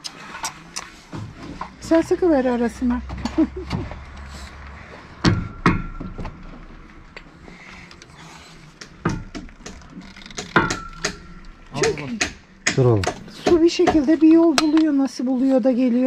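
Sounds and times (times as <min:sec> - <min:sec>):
sharp knocks: 0:05.2 - 0:06.4, 0:08.8 - 0:14.8.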